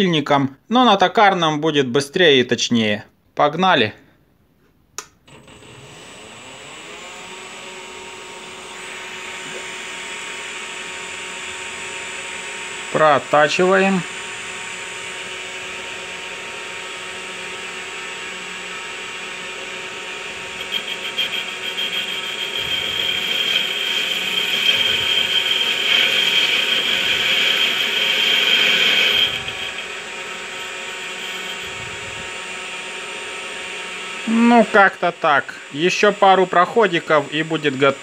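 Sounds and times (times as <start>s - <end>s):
metal lathe motor hum: 5.3s - 13.3s, 14.0s - 38.0s
high-pitched wavering cutting: 19.4s - 35.0s.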